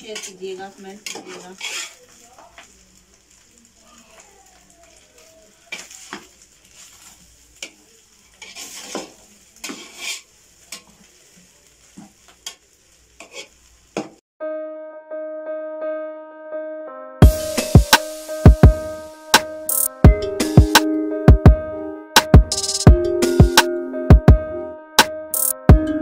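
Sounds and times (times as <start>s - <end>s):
spoon scraping pot: 1.0s - 2.0s, 8.4s - 10.3s
keyboard music: 14.4s - 26.0s.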